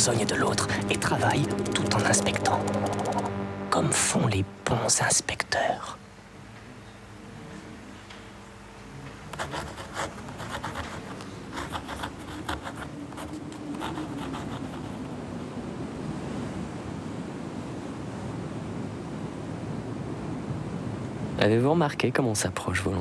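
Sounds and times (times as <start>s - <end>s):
faint low hum: 0.0s - 17.9s
surf and wind: 14.4s - 23.0s.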